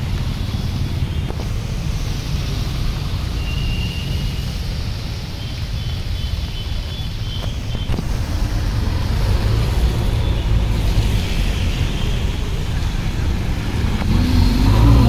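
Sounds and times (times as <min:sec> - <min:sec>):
heavy rain on flooded street: 0:00.0 - 0:15.0
road traffic rumble: 0:00.0 - 0:15.0.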